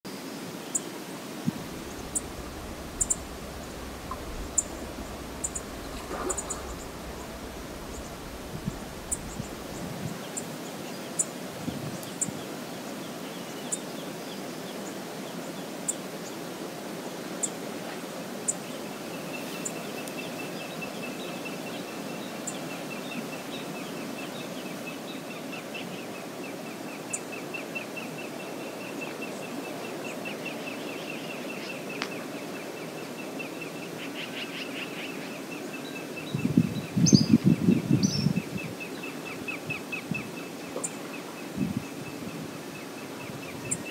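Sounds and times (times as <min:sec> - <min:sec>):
river water rushing: 0:01.0 - 0:10.8
low rumbling: 0:01.4 - 0:10.2.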